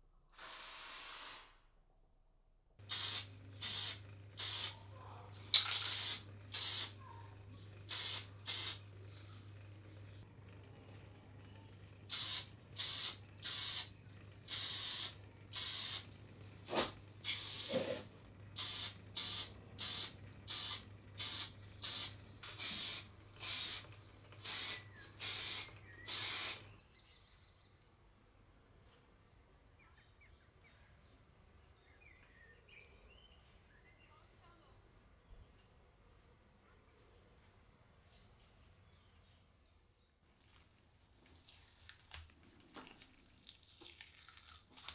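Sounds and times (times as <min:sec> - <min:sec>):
low steady hum: 0:02.8 - 0:29.4
spray paint can hissing: 0:02.9 - 0:04.8, 0:05.6 - 0:07.0, 0:07.9 - 0:08.8, 0:12.1 - 0:13.9, 0:14.5 - 0:16.1, 0:17.2 - 0:17.9, 0:18.6 - 0:26.6.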